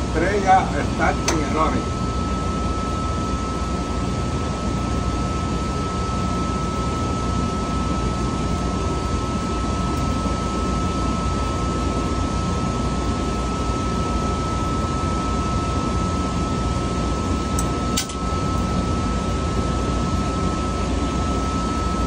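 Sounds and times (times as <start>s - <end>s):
machinery drone: 0.0s - 4.9s
constant high whine: 0.0s - 22.0s.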